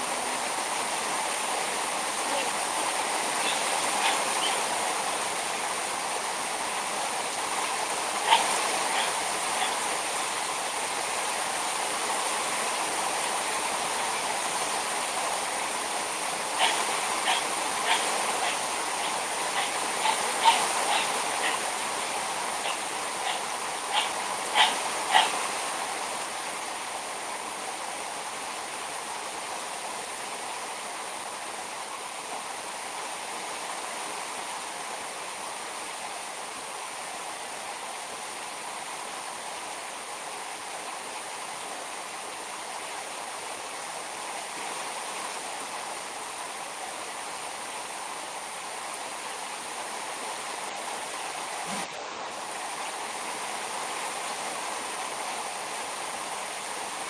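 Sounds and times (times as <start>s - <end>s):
heavy rain pouring: 0.0s - 37.0s.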